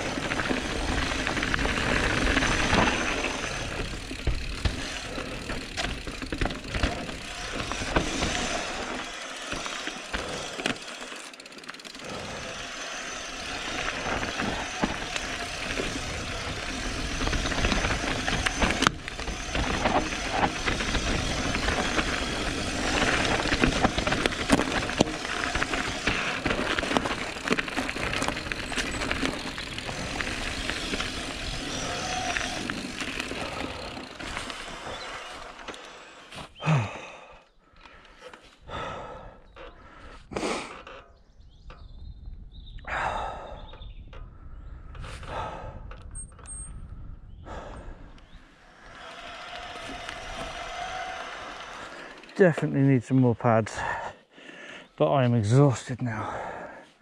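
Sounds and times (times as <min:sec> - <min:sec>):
bike rattling and knocking: 0:00.0 - 0:37.2, 0:44.9 - 0:46.9, 0:48.7 - 0:52.8
tyres rumbling over dirt: 0:00.0 - 0:37.3, 0:48.6 - 0:54.0.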